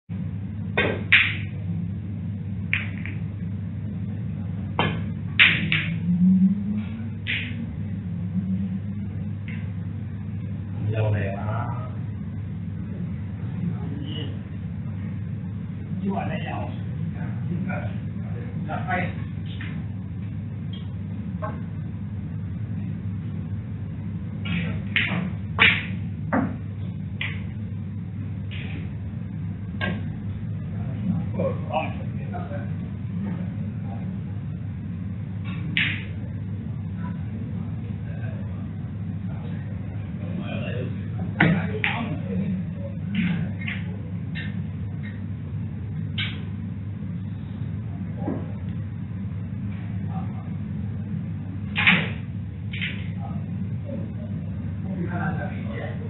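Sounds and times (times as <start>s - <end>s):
low hum: 0.1s - 56.0s
cue striking cue ball: 0.8s - 1.6s, 2.7s - 3.2s, 4.8s - 6.2s, 7.2s - 7.7s, 24.4s - 26.6s, 27.2s - 27.6s, 35.5s - 36.1s
snooker balls clacking: 0.8s - 1.6s, 2.7s - 3.3s, 4.8s - 6.1s, 7.2s - 7.7s, 24.4s - 27.6s, 35.5s - 36.2s.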